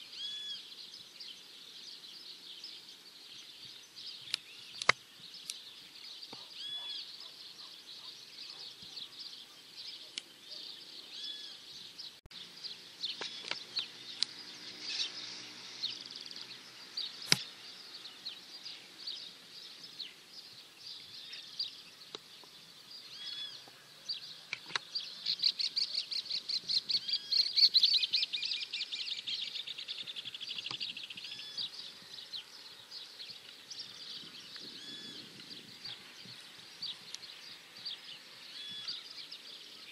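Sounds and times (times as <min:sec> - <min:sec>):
small birds chirping: 0:00.0 - 0:39.9
bird trilling rapidly: 0:00.2 - 0:00.7, 0:13.1 - 0:17.6, 0:34.6 - 0:36.0
sharp click: 0:04.3 - 0:05.6, 0:17.2 - 0:17.5.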